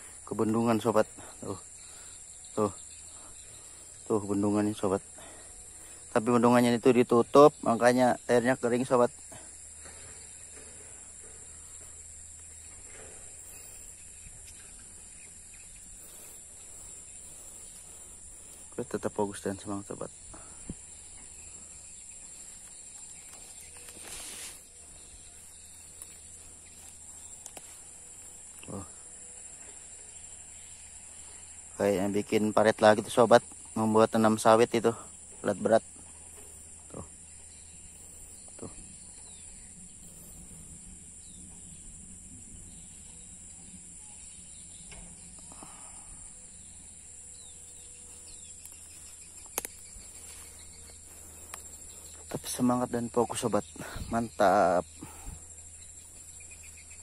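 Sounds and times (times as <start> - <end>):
insects chirping: 0.0 - 57.0
low hum: 9.2 - 19.2
brief rustle: 23.3 - 24.7.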